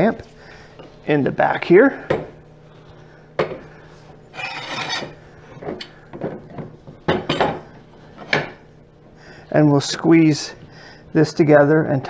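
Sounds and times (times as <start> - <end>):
metal clamp scraping: 4.4 - 5.1.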